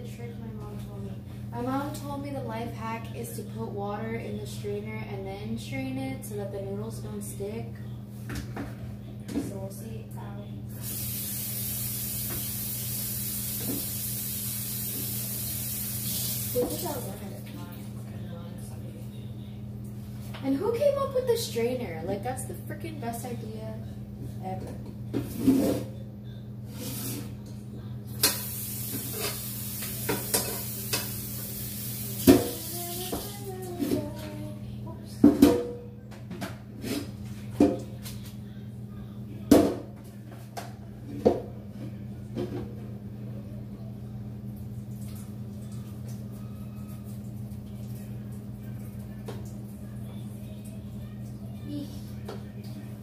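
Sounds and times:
kitchen appliance humming: 10.6s - 18.7s, 26.3s - 34.9s
faucet water running into sink: 10.8s - 17.3s, 28.2s - 33.7s
pot knocking against sink: 32.2s - 32.6s, 35.2s - 36.6s.

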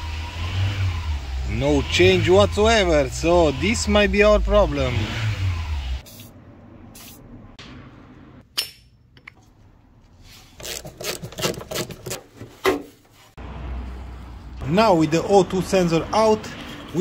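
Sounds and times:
aerosol spray hissing: 6.0s - 6.4s, 7.0s - 7.3s.

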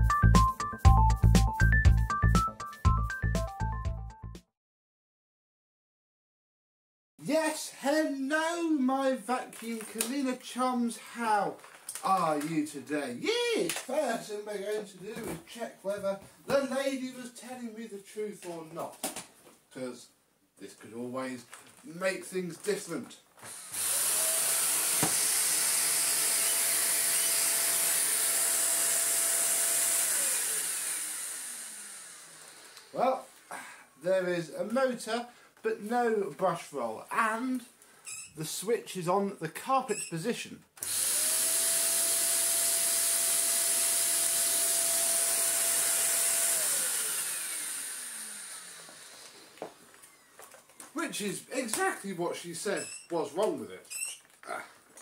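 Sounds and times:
vacuum cleaner motor whining: 23.5s - 33.0s, 40.8s - 50.9s.

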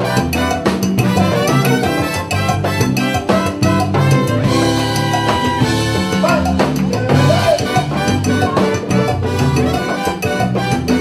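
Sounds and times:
brass section: 0.0s - 11.0s
percussion beat: 0.0s - 11.0s
salsa band playing: 0.0s - 11.0s.

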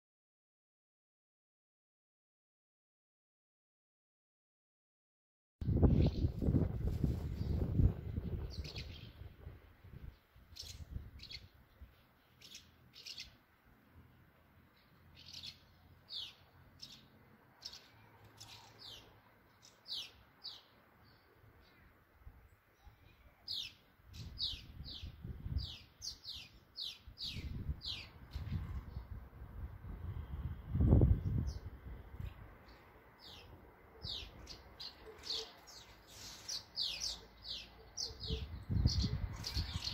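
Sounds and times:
swallows twittering: 7.4s - 9.3s, 10.0s - 13.4s, 14.8s - 21.9s, 22.8s - 29.2s, 31.2s - 39.9s.

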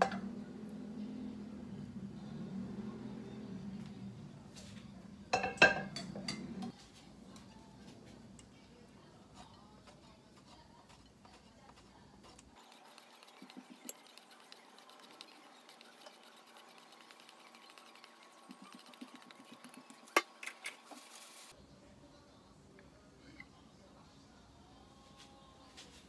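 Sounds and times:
cheese rasping on metal grater: 9.4s - 20.9s.

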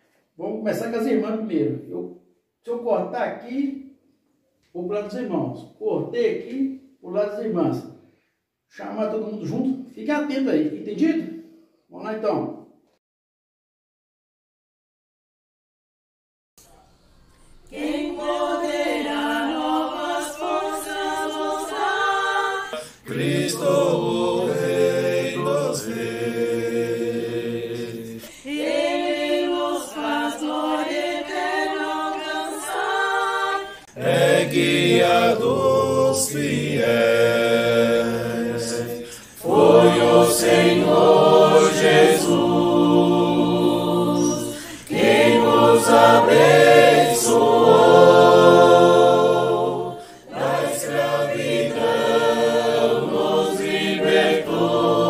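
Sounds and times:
women's voices singing: 17.5s - 55.0s
men's lower voices singing: 17.8s - 55.0s.

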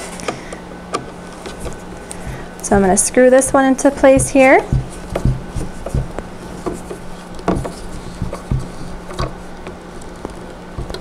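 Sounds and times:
louder knocks: 1.6s - 9.4s.

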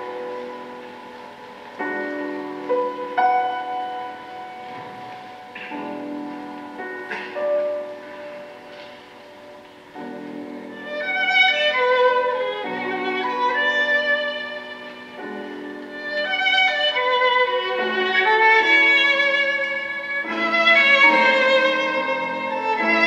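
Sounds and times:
bowed violin music: 10.0s - 23.0s.

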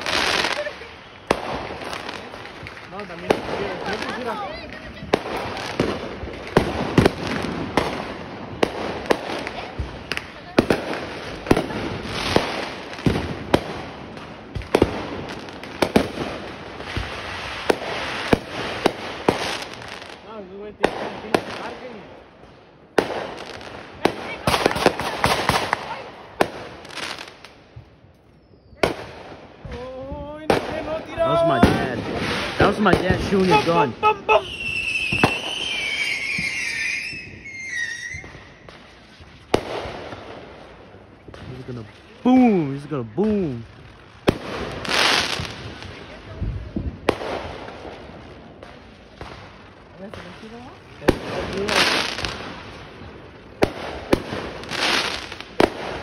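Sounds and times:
fireworks bangs: 0.0s - 56.0s
firework whistle: 33.2s - 39.0s.

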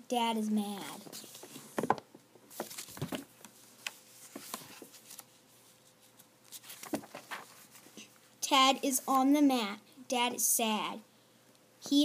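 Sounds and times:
faint crinkles and taps: 1.0s - 5.3s
paper pages rustling: 1.0s - 8.2s.

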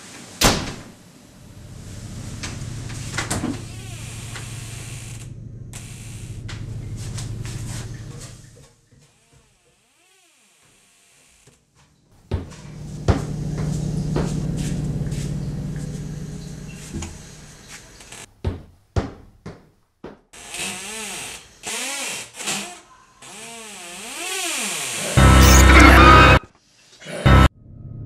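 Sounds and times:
low droning hum: 1.2s - 8.6s, 12.2s - 17.9s
sharp hits: 25.2s - 26.4s.

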